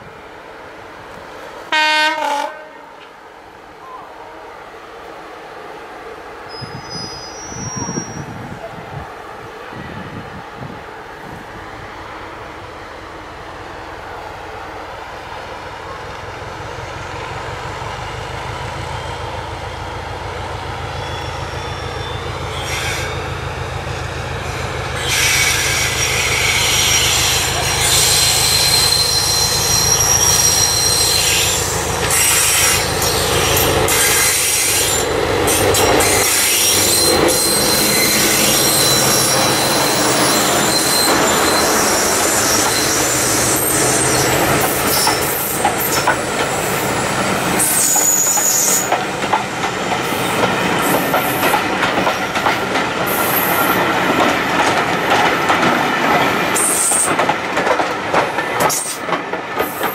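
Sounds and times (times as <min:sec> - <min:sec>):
diesel locomotive engine rumble: 0:00.0 - 0:59.9
high-pitched wheel squeal: 0:06.5 - 0:08.3, 0:25.0 - 0:45.6, 0:47.6 - 0:49.0
clickety-clack of train wheels: 0:16.1 - 0:59.9.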